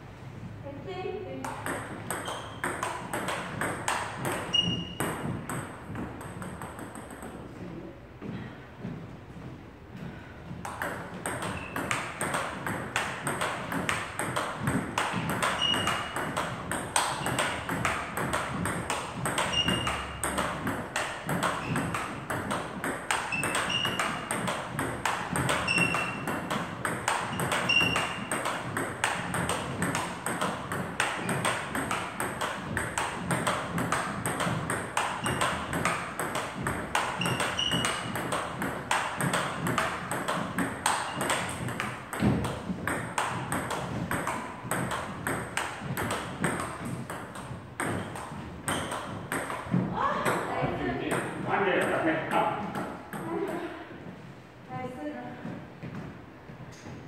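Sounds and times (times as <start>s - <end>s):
shoes squeaking on wooden floor: 2.1s - 2.7s, 4.2s - 6.2s, 11.5s - 12.1s, 14.6s - 17.7s, 19.2s - 20.6s, 21.2s - 22.3s, 23.2s - 28.3s, 35.1s - 38.3s, 40.8s - 42.8s, 46.0s - 50.2s.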